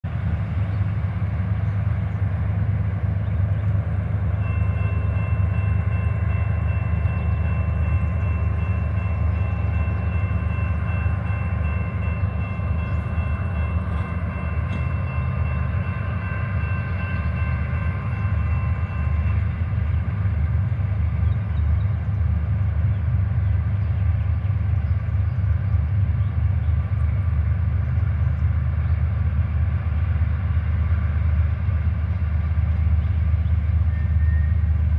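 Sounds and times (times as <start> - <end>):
crossing warning bell ringing: 3.6 - 21.5.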